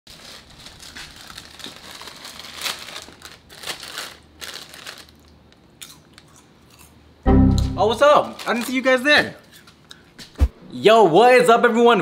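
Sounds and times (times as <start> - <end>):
plastic chip bag crinkling: 0.1 - 6.3, 8.0 - 9.1.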